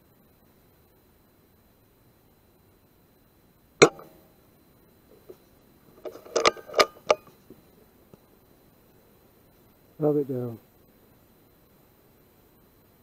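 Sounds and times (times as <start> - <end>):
air rifle shot: 3.8 - 4.2
rifle lever metallic clicks: 6.0 - 7.3.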